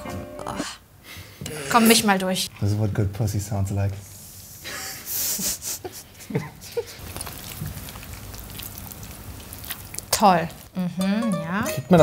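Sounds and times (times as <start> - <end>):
hands kneading wet dough: 6.9 - 10.8.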